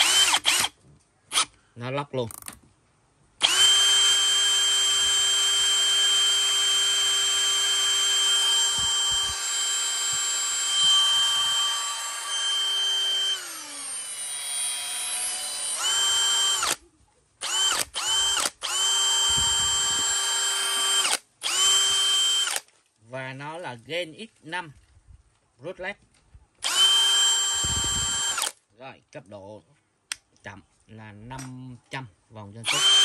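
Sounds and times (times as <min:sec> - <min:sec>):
cordless drill whining: 0:00.0 - 0:01.6, 0:03.4 - 0:16.8, 0:17.4 - 0:22.7, 0:26.6 - 0:28.6, 0:32.6 - 0:33.0.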